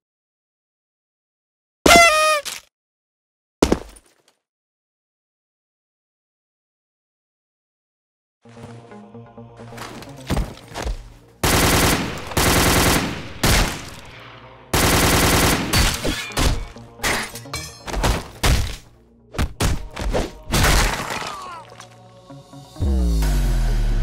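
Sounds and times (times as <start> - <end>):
shots and hits: 11.5 - 14.2.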